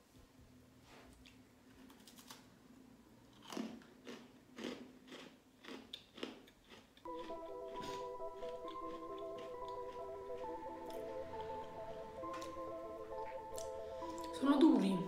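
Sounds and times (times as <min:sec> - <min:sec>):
crunchy cookie chewing: 0:03.3 - 0:14.4.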